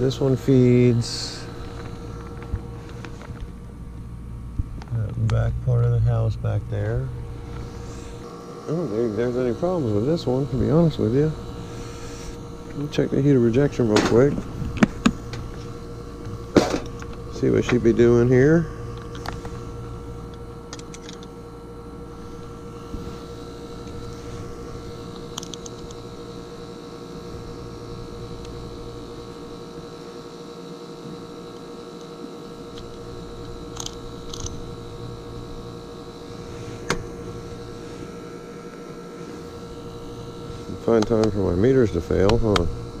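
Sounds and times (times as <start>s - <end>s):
heat pump humming: 0.0s - 43.0s
meter and probe clicks: 25.2s - 26.0s, 32.7s - 34.6s, 40.9s - 41.4s, 42.2s - 42.7s.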